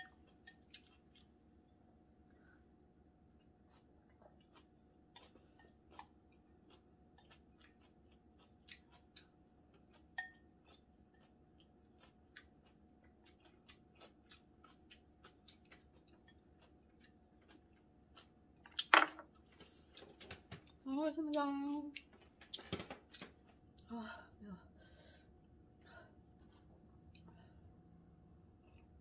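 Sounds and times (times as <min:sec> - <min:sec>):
faint chewing of noodles: 0:00.0 - 0:18.8, 0:24.8 - 0:29.0.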